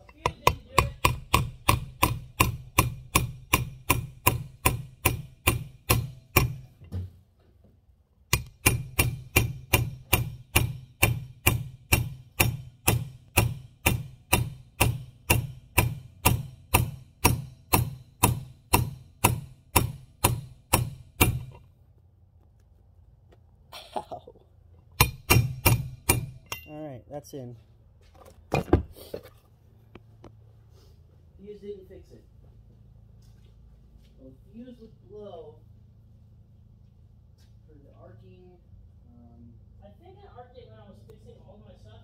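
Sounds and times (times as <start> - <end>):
hammer striking metal: 0.0 - 7.1, 8.3 - 21.7, 25.0 - 26.8.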